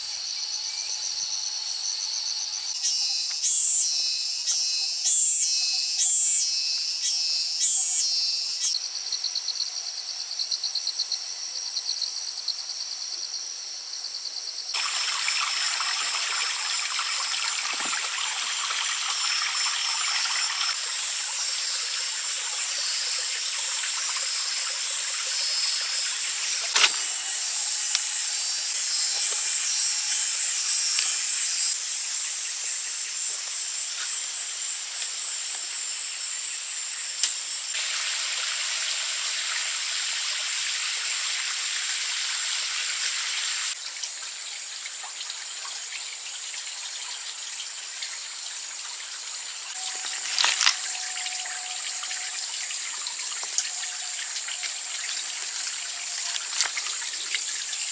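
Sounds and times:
insect high buzz: 0.0s - 57.9s
insects trilling: 0.0s - 57.9s
rain hissing: 14.8s - 31.8s
sharp click: 26.6s - 27.1s.

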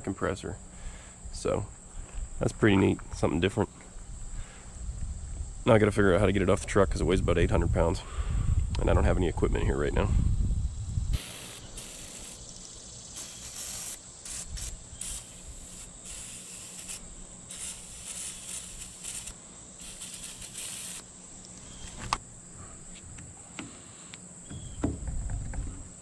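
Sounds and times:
high insect drone: 0.0s - 26.0s
aerosol spray hissing: 11.1s - 21.1s.

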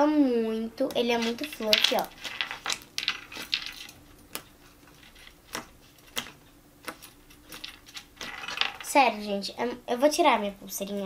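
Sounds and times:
hands kneading slime: 0.8s - 8.3s.

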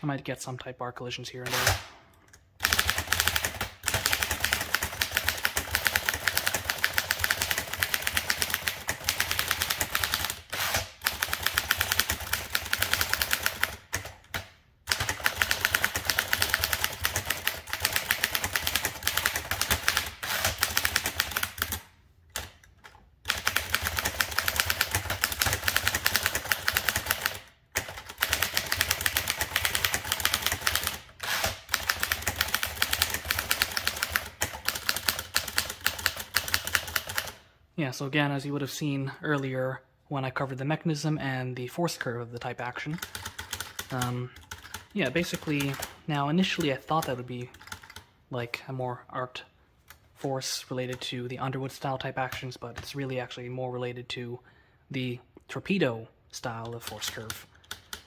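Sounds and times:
typewriter typing fast: 2.6s - 14.1s, 14.9s - 21.8s, 23.3s - 37.4s, 42.8s - 48.0s, 56.8s - 58.0s.

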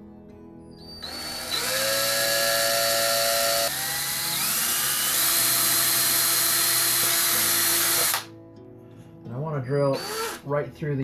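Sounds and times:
cordless drill boring plastic: 0.9s - 8.3s, 10.0s - 10.5s.

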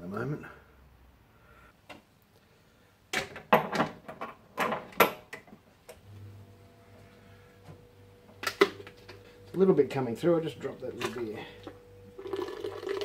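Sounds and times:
fridge hum: 5.0s - 13.0s.

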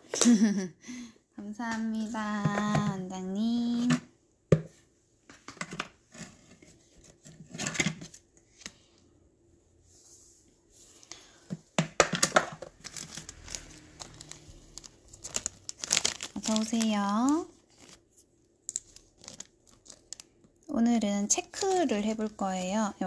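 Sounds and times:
crinkling and tearing: 12.6s - 20.6s.

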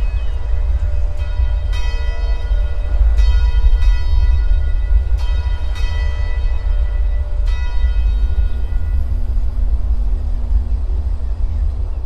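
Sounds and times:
bell-like chimes ringing: 0.0s - 9.1s
low sustained note: 0.0s - 12.0s.

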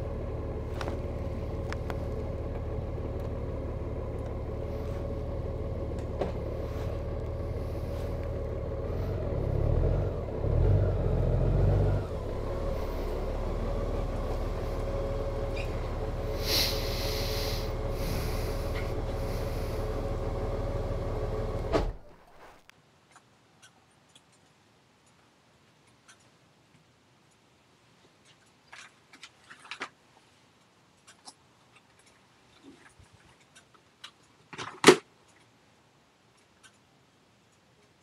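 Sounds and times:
motorcycle engine idling: 0.0s - 10.6s, 12.0s - 21.7s.

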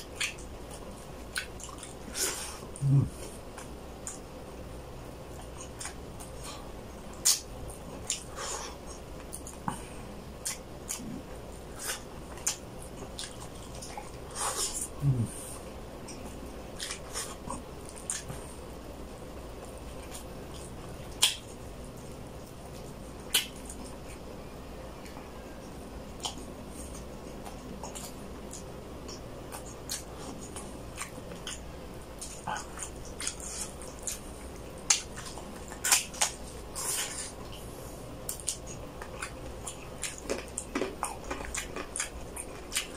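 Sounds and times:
man chewing and sucking: 26.2s - 42.9s.

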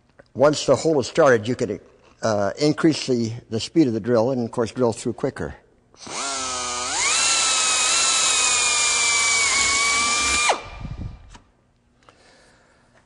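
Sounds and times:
drill motor spinning down: 6.0s - 11.3s
electric drill whining: 6.0s - 11.3s.

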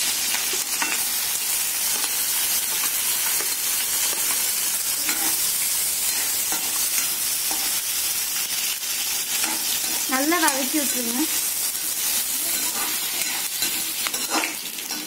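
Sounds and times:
onions sizzling in a pan: 0.0s - 15.0s
spatula scraping a metal pan: 9.1s - 11.4s, 12.0s - 15.0s.

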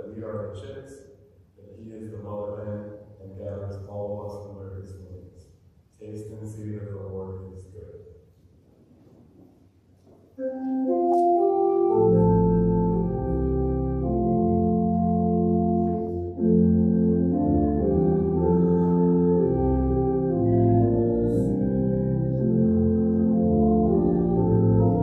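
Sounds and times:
church organ chords: 10.4s - 25.0s.

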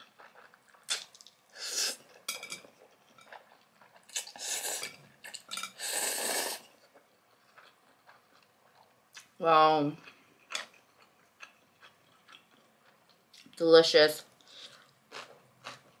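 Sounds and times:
hissing noodle slurps: 5.8s - 6.7s.

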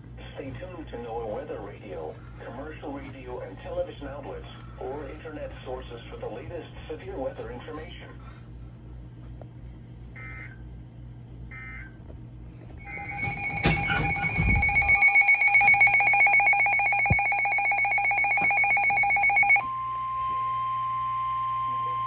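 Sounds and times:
pulsing two-pitch alarm beeping: 12.8s - 20.2s
steady single-pitch warning tone: 12.8s - 22.0s.

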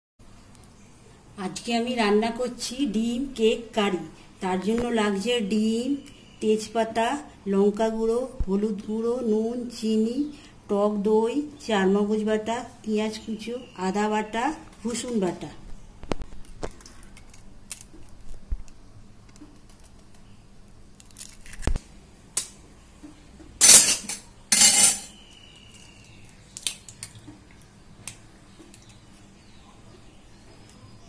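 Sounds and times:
eggshells cracking: 16.4s - 21.8s, 25.6s - 29.0s.

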